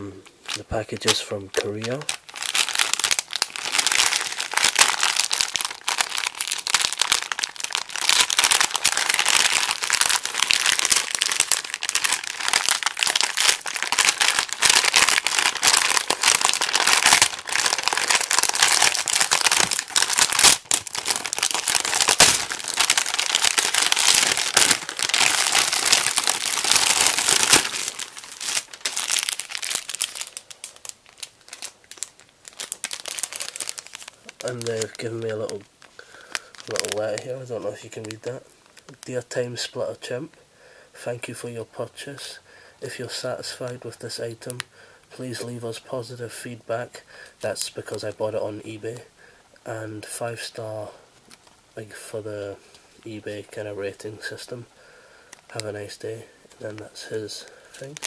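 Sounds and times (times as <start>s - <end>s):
plastic bag crinkling: 0.4s - 39.3s, 51.2s - 52.1s, 55.3s - 58.0s.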